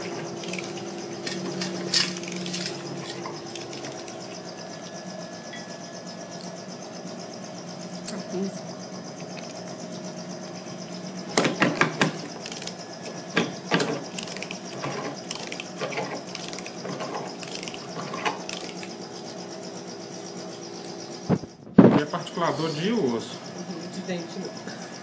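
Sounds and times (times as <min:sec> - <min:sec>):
bone mill clicking and grinding: 0:00.0 - 0:04.4, 0:11.6 - 0:12.8, 0:13.4 - 0:19.0
steady hum: 0:00.0 - 0:25.0.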